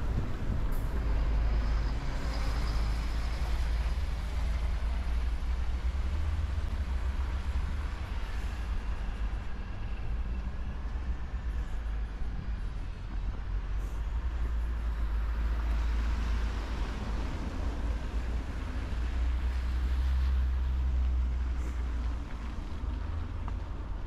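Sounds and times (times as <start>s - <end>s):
traffic low rumble: 0.0s - 24.0s.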